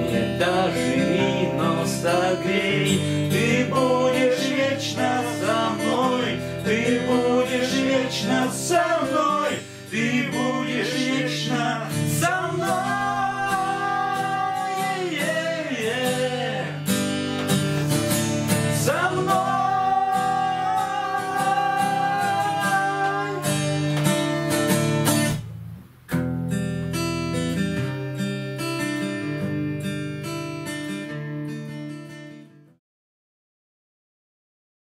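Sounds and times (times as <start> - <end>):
acoustic guitar strummed and picked: 0.0 - 32.8
person singing long notes: 3.4 - 16.9, 18.8 - 23.9.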